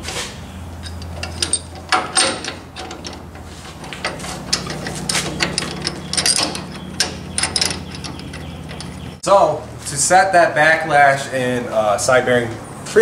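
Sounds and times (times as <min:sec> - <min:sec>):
metal knocks clinks and scrapes: 0:00.0 - 0:09.2
steady low hum: 0:00.0 - 0:12.9.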